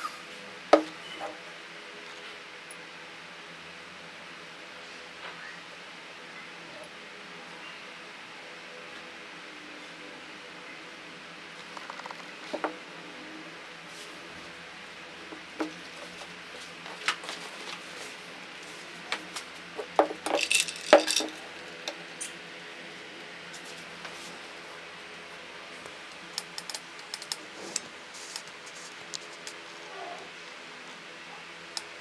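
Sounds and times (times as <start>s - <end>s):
ice cubes clinking in glass dish: 20.1s - 21.4s.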